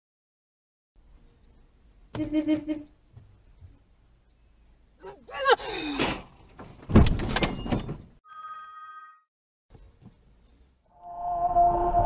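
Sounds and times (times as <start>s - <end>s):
steady tone: 10.9s - 12.0s.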